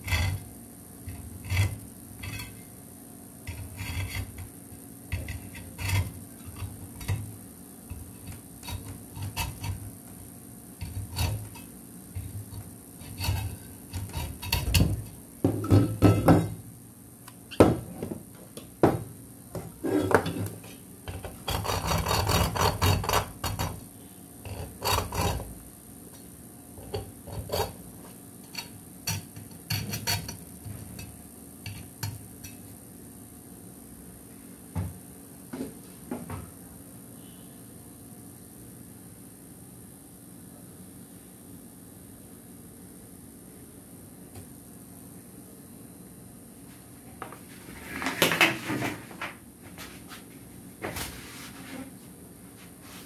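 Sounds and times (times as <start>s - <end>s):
hacksaw rasping strokes: 21.3s - 23.8s, 24.6s - 25.5s.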